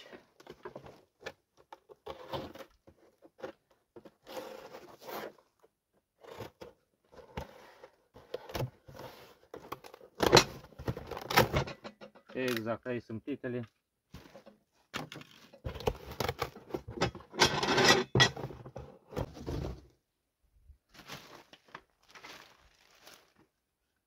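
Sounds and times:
cardboard packaging scraping: 2.0s - 5.5s, 20.9s - 23.5s
plastic wrapping rustling: 20.9s - 23.6s.

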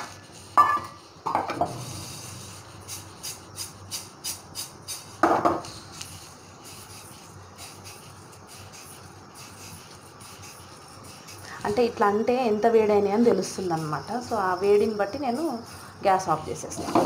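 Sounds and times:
seeds rattling in a metal pan: 0.0s - 17.0s.

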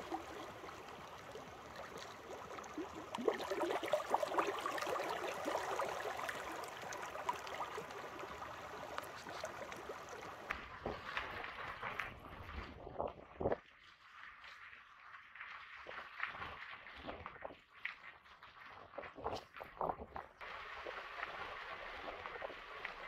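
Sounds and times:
creek water babbling: 0.0s - 11.7s.

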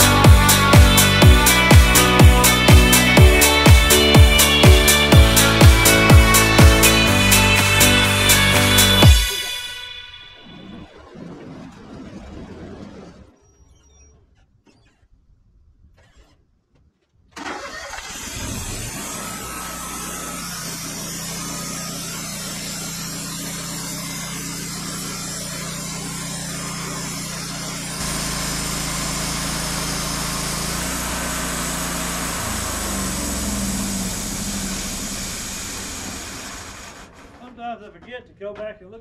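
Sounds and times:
band blade sawing log: 0.0s - 9.5s, 18.4s - 37.5s
sawmill engine running: 0.0s - 10.2s, 17.4s - 37.8s.

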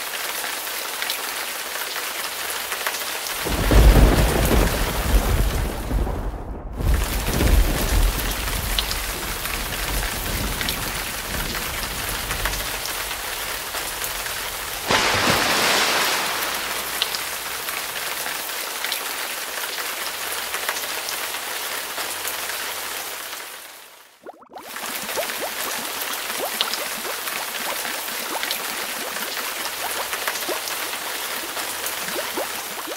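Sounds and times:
rain pattering: 0.0s - 23.8s, 24.6s - 32.9s
thunder rumbling: 3.4s - 18.0s.

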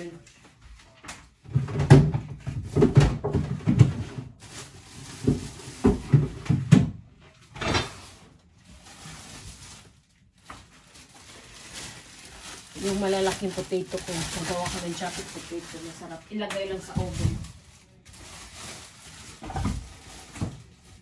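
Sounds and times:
groceries knocking and thumping: 1.1s - 21.0s
cupboards opening and closing: 1.4s - 4.4s, 5.2s - 8.2s, 19.3s - 20.7s.

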